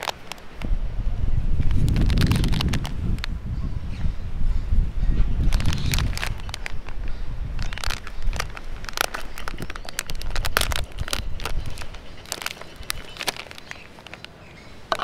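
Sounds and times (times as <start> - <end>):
plastic snack pouch crinkling: 0.0 - 0.7, 1.6 - 3.3, 5.4 - 15.0.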